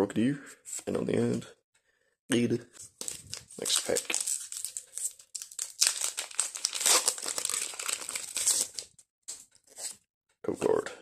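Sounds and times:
foil wrapper crinkling: 3.0s - 8.9s.

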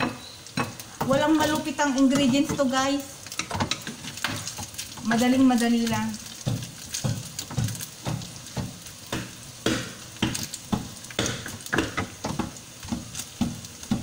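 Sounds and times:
meat sizzling in a frying pan: 0.0s - 14.0s.

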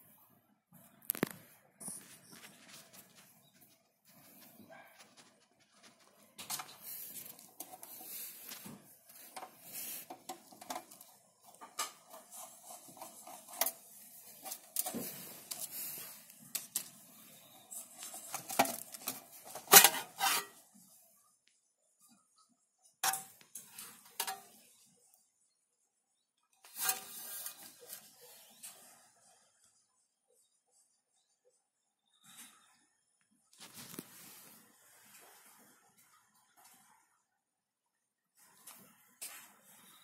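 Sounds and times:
metal cover clattering: 18.4s - 20.6s.

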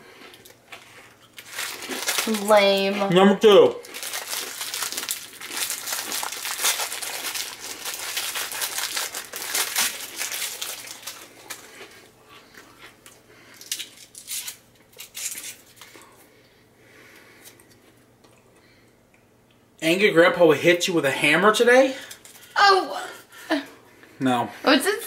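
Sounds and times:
cellophane wrapper crinkling: 1.2s - 3.0s, 3.7s - 12.0s, 13.5s - 16.0s.

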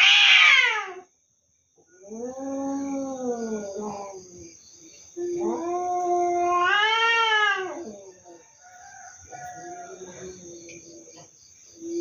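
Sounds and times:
cats yowling: 0.0s - 1.1s, 1.9s - 4.5s, 5.2s - 8.4s.

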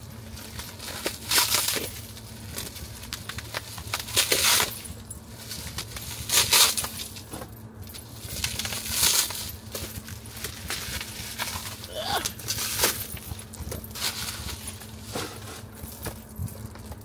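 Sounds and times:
wrapping rustling and tearing: 0.2s - 7.3s, 7.9s - 17.0s
small crinkles and clicks: 0.3s - 7.3s.

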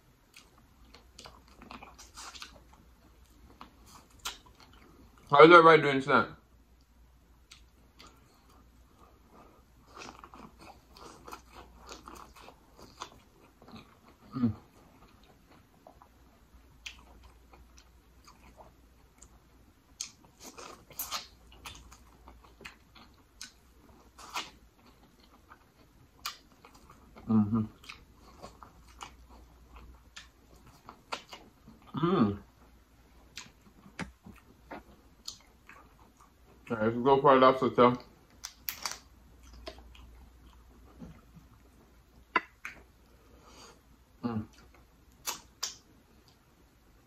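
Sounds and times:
person chewing corn on the cob: 0.3s - 5.2s, 7.5s - 32.0s, 33.2s - 36.7s, 38.3s - 41.7s.

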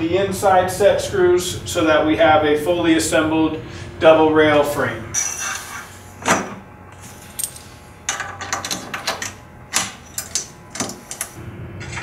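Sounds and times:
metal pin clinking on pipe: 7.3s - 11.3s.

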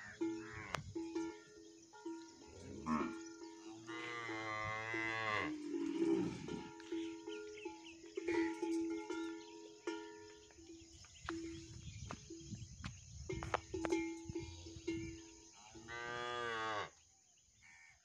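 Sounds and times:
cow mooing: 0.0s - 0.8s, 2.5s - 6.9s, 15.8s - 16.9s.

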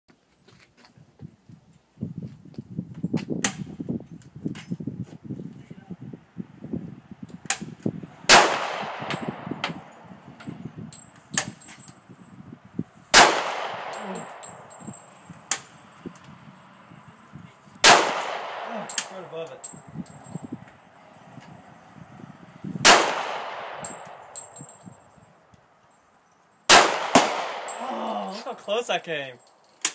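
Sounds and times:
pistol shots with echo: 8.3s - 9.6s, 13.1s - 14.4s, 17.8s - 19.1s, 22.8s - 24.1s, 26.7s - 27.8s.

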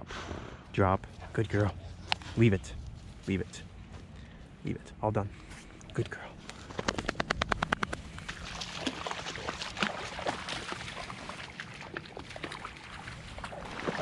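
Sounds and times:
sharp clicks: 6.5s - 8.2s
water sloshing and splashing: 7.9s - 14.0s.

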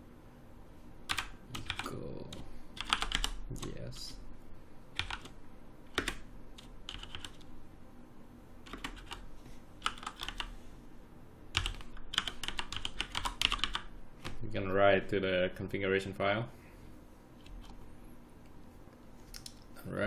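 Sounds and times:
typing on computer keyboard: 1.1s - 3.8s, 5.0s - 7.5s, 8.6s - 10.5s, 11.5s - 14.4s.

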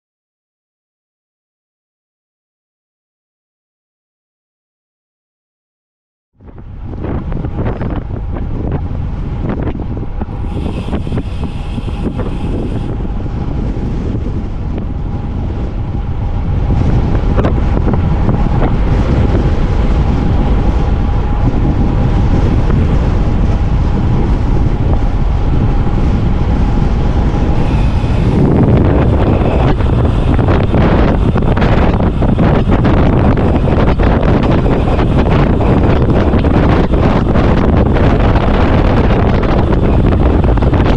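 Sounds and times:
wind buffeting microphone: 6.4s - 40.9s
faint steady whine: 6.7s - 18.7s, 19.3s - 37.4s.

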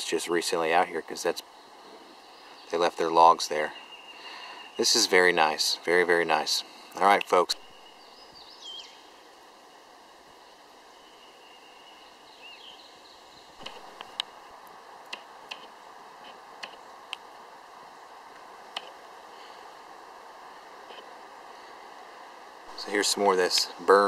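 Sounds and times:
faint steady hiss: 0.0s - 24.0s
burning wood popping: 13.6s - 17.4s.

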